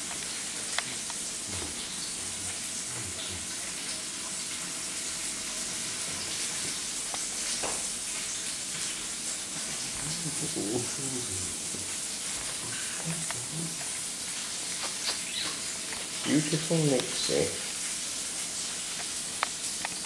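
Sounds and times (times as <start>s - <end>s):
steady hiss: 0.0s - 20.0s
low vocal sound: 9.8s - 11.8s, 12.6s - 13.8s.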